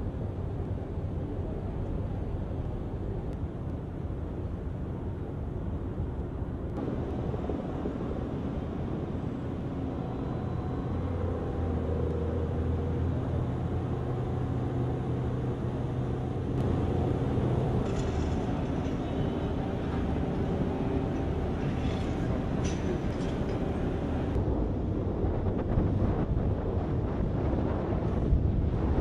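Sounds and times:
ship engines rumbling: 6.8 - 24.4.

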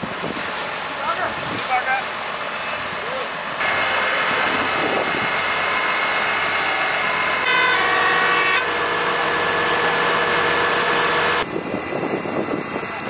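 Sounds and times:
fire engine running: 0.0 - 13.0
two-note horn: 7.4 - 11.4.

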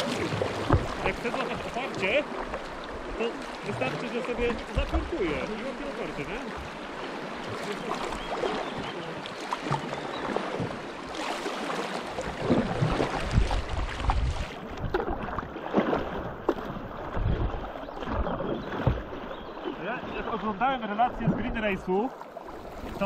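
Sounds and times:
paddle strokes splashing: 0.0 - 23.0
river water rushing against kayak: 0.0 - 23.0.

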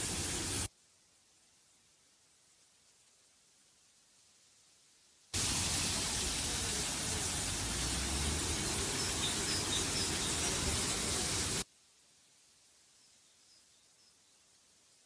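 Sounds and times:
loud static hiss: 0.0 - 15.0
faint bird chirps: 12.9 - 15.0.

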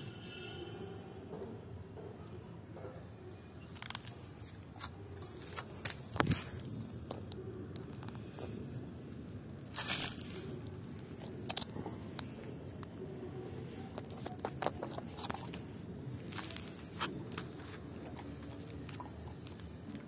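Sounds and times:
dog crunching bones: 4.8 - 13.0, 13.8 - 20.0.

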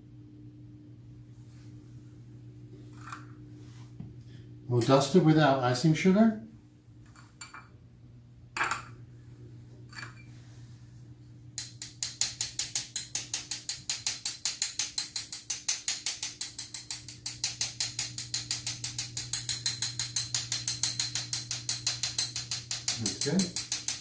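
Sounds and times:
spoon scratching wire sieve: 11.8 - 24.0.

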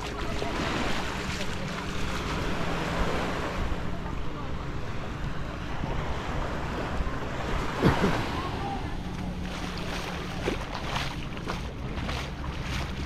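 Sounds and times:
surf washing onto beach: 0.0 - 4.4.

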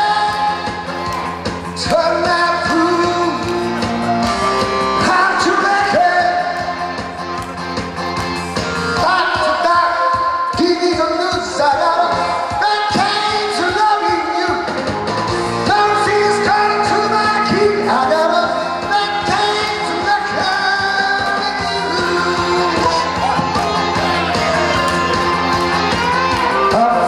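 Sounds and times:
man singing into microphone: 0.0 - 0.8, 1.8 - 3.5, 5.0 - 6.9, 9.0 - 14.8, 15.6 - 23.2, 26.6 - 27.0
amplified backing music: 0.0 - 27.0.

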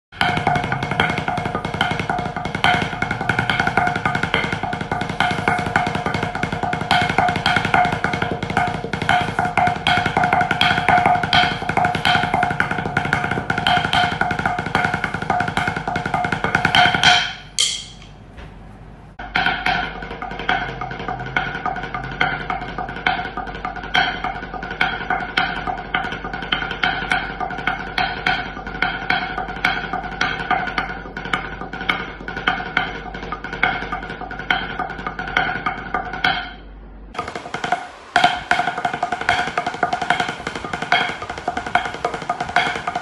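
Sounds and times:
rapid clicking drumstick strokes: 0.2 - 18.1, 37.2 - 43.0.

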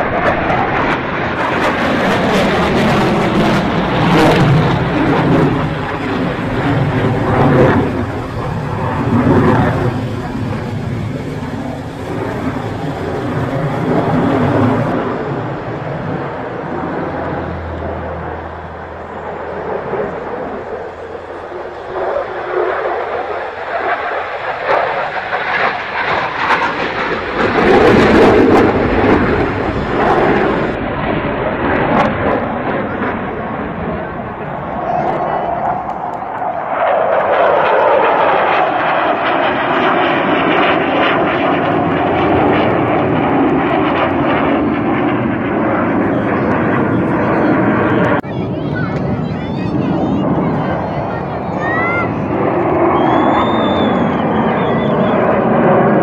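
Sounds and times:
jet engine roar: 0.0 - 56.0.

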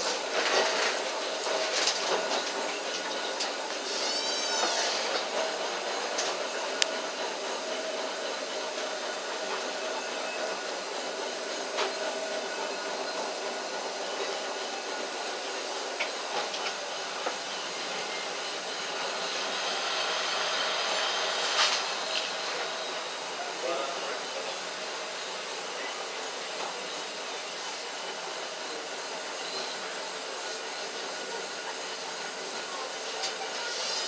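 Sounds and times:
sharp clicks from tram car: 0.0 - 7.2, 11.7 - 12.2, 15.3 - 18.2, 21.3 - 22.7, 32.5 - 34.0
tram running hum and rumble: 0.0 - 34.0.

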